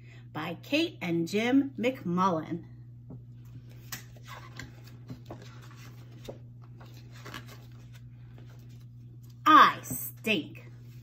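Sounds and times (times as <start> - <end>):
paper book rustling: 3.6 - 9.4.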